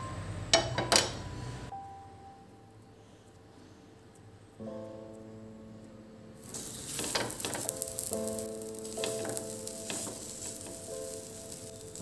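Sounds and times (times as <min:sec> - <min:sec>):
oil sizzling on a griddle: 0:06.4 - 0:12.0
sharp crackles of oil: 0:06.4 - 0:12.0.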